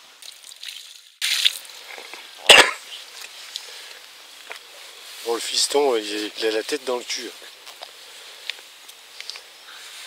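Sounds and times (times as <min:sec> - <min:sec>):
water splash from bucket: 0:00.2 - 0:02.1.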